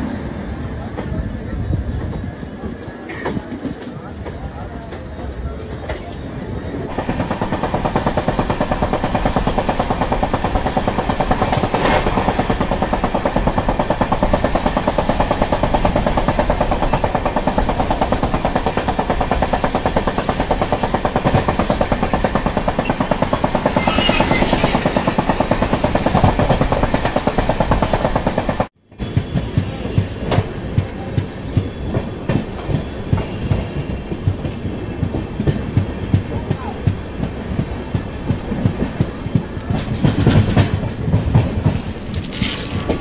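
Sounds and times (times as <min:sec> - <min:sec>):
train rumble: 0:00.0 - 0:43.0
train wheels clattering on rails: 0:00.8 - 0:43.0
high screech: 0:22.6 - 0:25.6.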